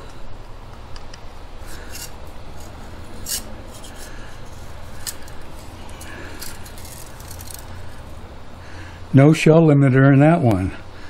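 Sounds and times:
screwdriver metal clicks and scrapes: 0.9s - 8.1s.

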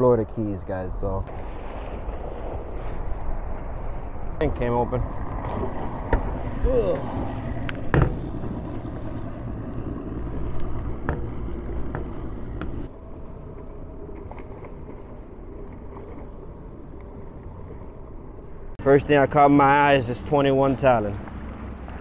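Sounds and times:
boat engine hum: 0.0s - 22.0s
wind: 0.0s - 22.0s
choppy water: 0.9s - 22.0s
hatch lid knocking shut: 7.9s - 8.2s.

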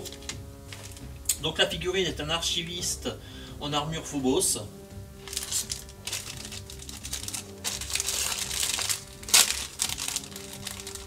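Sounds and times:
plastic bag crinkling: 0.0s - 1.1s, 5.2s - 11.0s.

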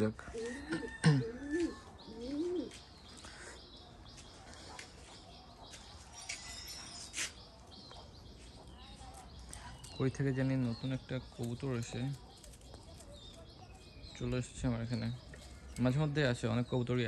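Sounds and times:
pigeons cooing: 0.0s - 4.7s.

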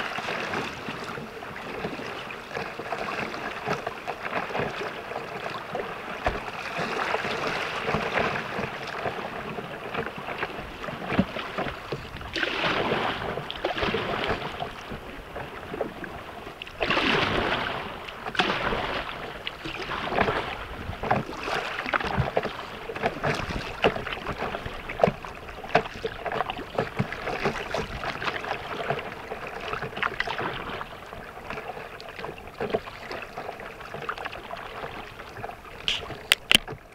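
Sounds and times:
river water rushing and splashing: 0.0s - 36.9s.

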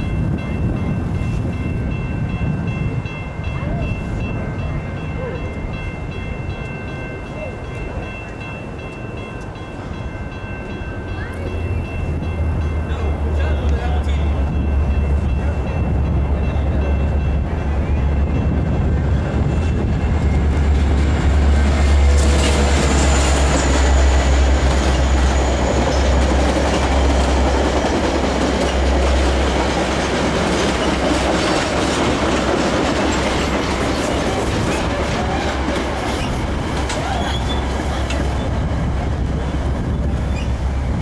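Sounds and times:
diesel locomotive engine drone: 0.0s - 41.0s
train cars rolling on steel wheels: 0.0s - 41.0s.

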